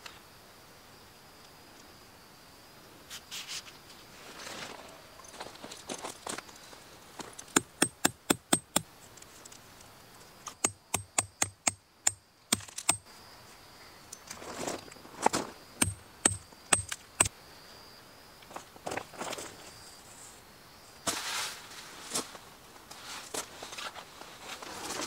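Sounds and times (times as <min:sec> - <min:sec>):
hammer striking tent peg: 0:07.6 - 0:08.9, 0:10.6 - 0:13.0, 0:15.8 - 0:17.3.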